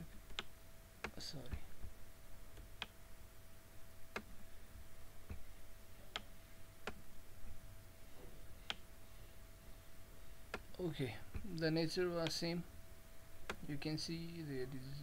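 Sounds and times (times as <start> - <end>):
faint electrical hum: 0.0 - 15.0
computer mouse clicking: 0.3 - 1.2.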